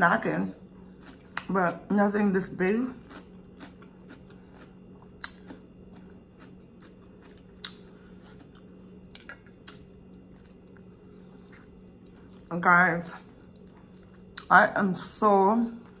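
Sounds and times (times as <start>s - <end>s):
chewing with wet mouth clicks: 0.7s - 1.6s, 3.0s - 12.5s, 13.2s - 14.5s.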